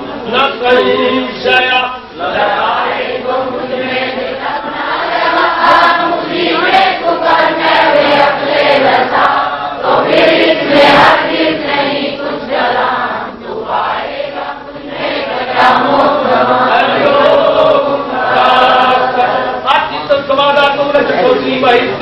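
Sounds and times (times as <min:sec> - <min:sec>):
group chanting: 0:02.2 - 0:19.7.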